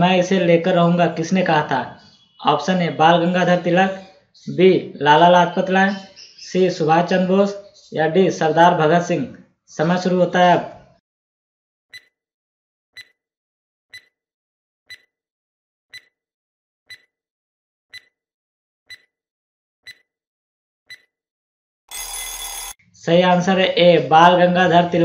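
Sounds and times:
timer ticks: 11.9s - 12.2s, 13.0s - 13.2s, 13.9s - 14.2s, 14.9s - 15.1s, 15.9s - 16.2s, 16.9s - 17.1s, 17.9s - 18.2s, 18.9s - 19.1s, 19.8s - 20.1s, 20.9s - 21.1s
harsh buzzer: 21.9s - 22.8s.

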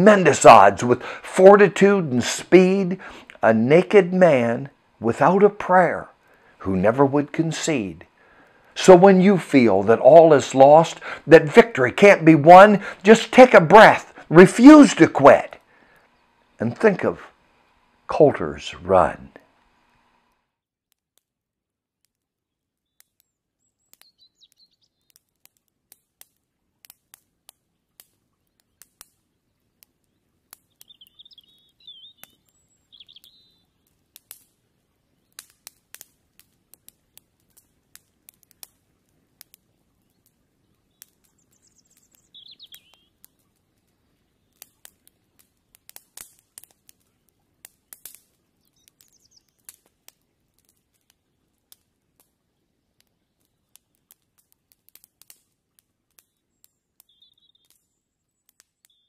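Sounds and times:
irregular clicks and crackles: 19.4s - 59.0s
birds chirping: 22.5s - 25.2s, 27.7s - 34.0s, 39.6s - 44.9s, 48.5s - 49.8s, 56.2s - 59.0s.

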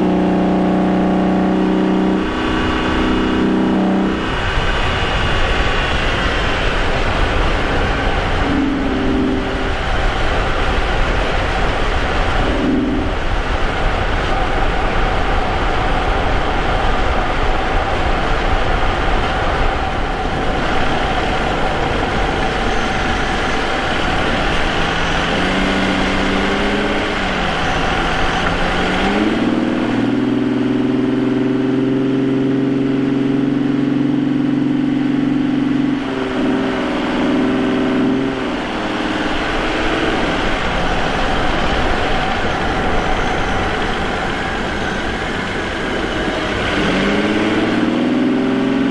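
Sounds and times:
car engine running: 0.0s - 48.9s
road and tyre noise: 0.0s - 48.9s.

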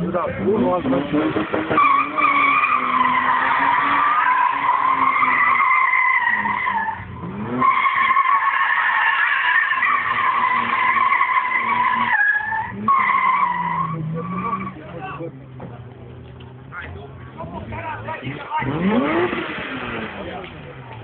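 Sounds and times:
car engine revving: 0.0s - 21.0s
tyres squealing: 0.9s - 15.2s.

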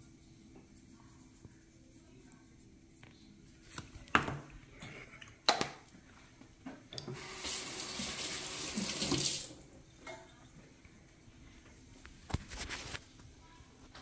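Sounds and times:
kitchen tap running: 6.9s - 9.8s.

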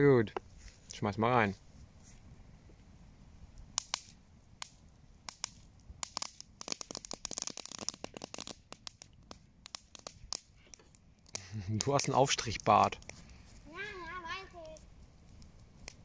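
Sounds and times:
campfire crackling and popping: 0.0s - 16.0s
fire hissing: 0.4s - 16.0s.

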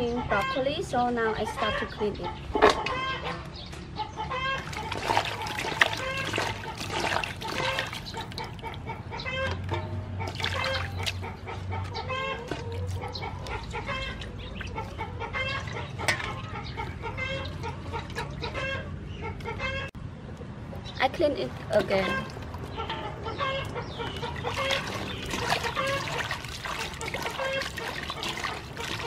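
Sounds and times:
chickens clucking: 0.0s - 20.9s, 21.7s - 29.0s
water splashing in steel bowl: 4.6s - 8.8s, 10.2s - 11.3s, 24.1s - 29.0s.

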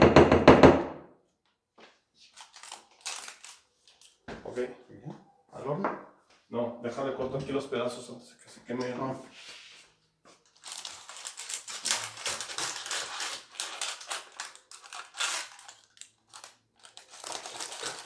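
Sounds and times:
parchment paper crinkling: 2.2s - 4.2s, 10.3s - 18.0s.

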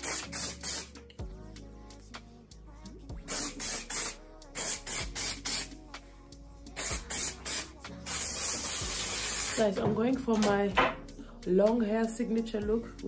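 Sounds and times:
aerosol spray puffs: 0.0s - 0.9s, 3.3s - 5.7s, 6.8s - 9.7s.

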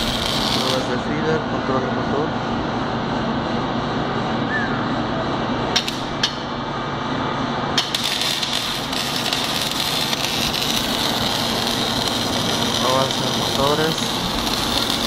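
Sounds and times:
welding arc crackling: 0.0s - 1.2s, 5.8s - 6.5s, 7.7s - 15.0s
machine hum: 0.0s - 15.0s.

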